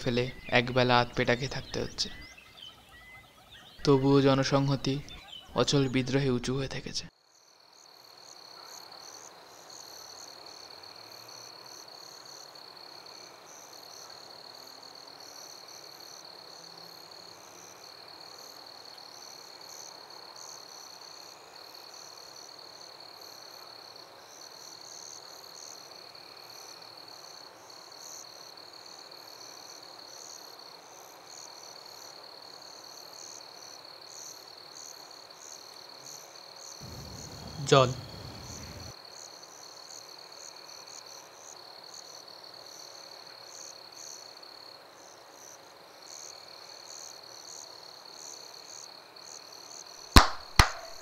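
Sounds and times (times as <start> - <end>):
insects trilling: 29.1 - 42.9
pulsing insect chirping: 36.8 - 38.9
soft hiss: 36.8 - 38.9.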